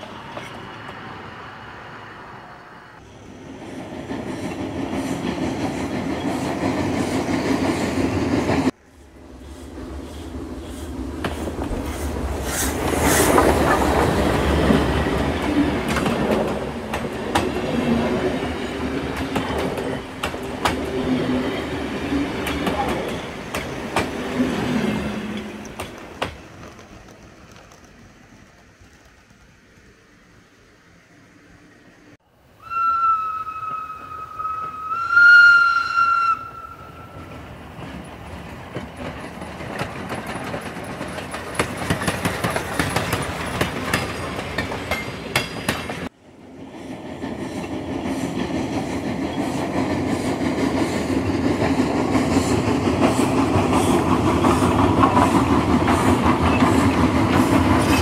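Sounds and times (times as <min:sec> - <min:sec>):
wheels running on rails: 0:03.4 - 0:30.7, 0:37.1 - 0:58.0.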